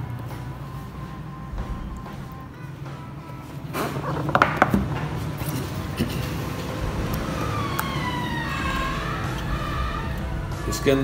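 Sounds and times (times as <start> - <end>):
falling siren-like tone: 6.6 - 11.0.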